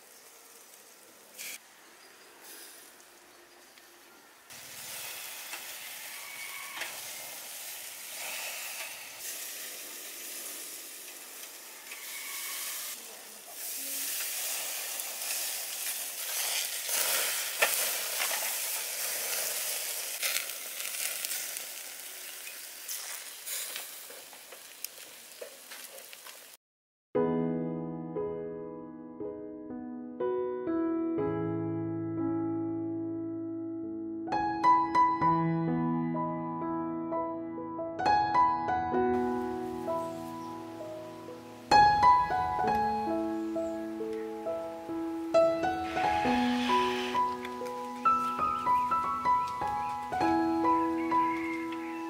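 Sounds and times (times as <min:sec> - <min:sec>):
meat sizzling on a grill: 0:00.0 - 0:01.6, 0:02.4 - 0:03.8, 0:04.5 - 0:26.6, 0:39.3 - 0:42.0, 0:42.9 - 0:52.0
fat crackling and popping: 0:13.5 - 0:26.6.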